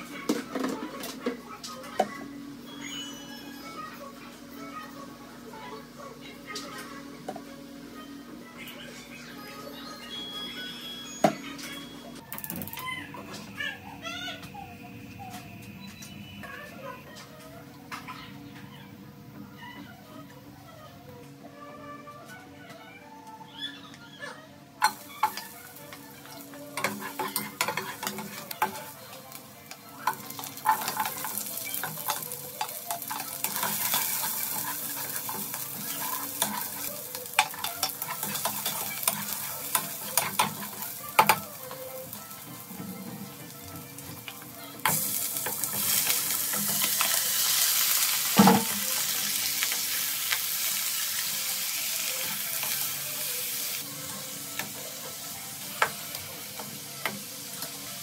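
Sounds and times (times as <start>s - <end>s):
onion sizzling in hot oil: 24.8s - 58.0s.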